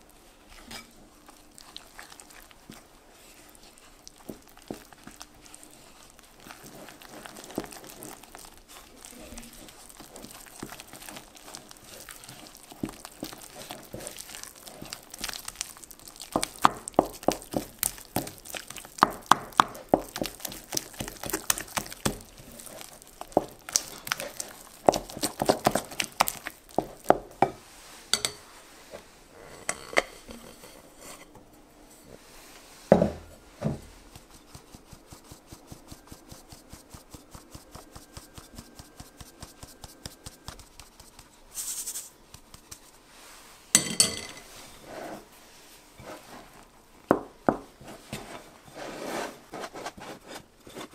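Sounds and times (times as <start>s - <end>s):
dough squelching: 0.0s - 28.0s, 33.4s - 43.4s.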